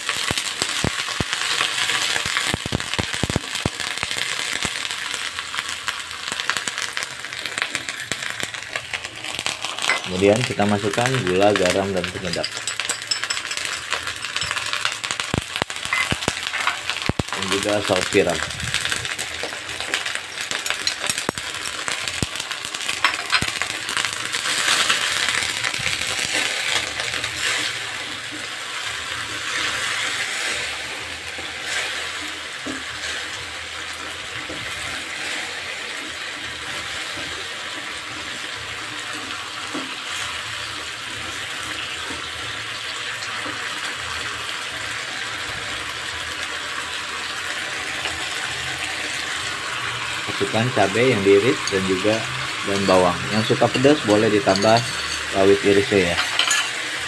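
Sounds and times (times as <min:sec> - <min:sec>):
green beans sizzling in a wok: 0:00.0 - 0:57.0
spatula scraping a wok: 0:26.0 - 0:27.8, 0:31.6 - 0:32.2.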